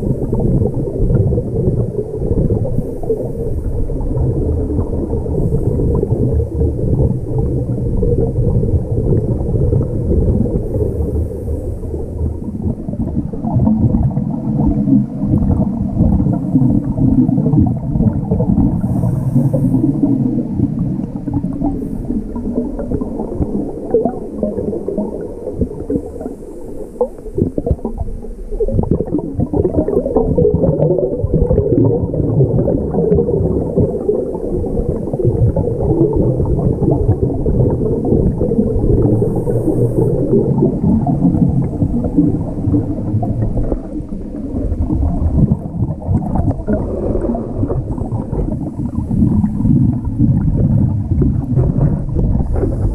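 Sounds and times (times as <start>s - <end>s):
underwater bubbles gurgling: 0.0s - 52.9s
regulator inhalation hiss: 18.8s - 19.9s, 39.2s - 40.3s.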